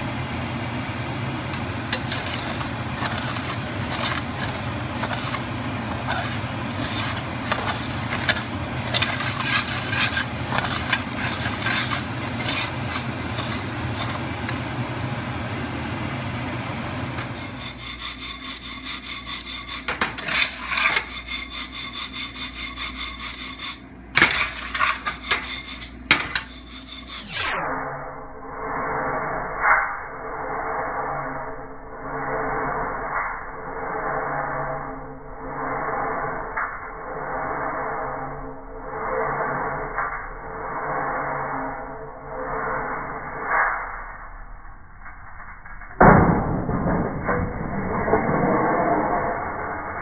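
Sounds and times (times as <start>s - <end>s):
low hum: 0.0s - 50.0s
spatula scraping rice in pan: 1.5s - 14.8s, 17.2s - 27.4s.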